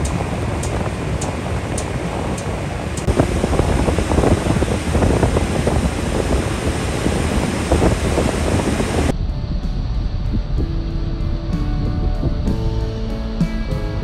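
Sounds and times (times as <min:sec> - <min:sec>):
water rushing under boat: 0:00.0 - 0:09.1
wind buffeting microphone: 0:00.0 - 0:14.0.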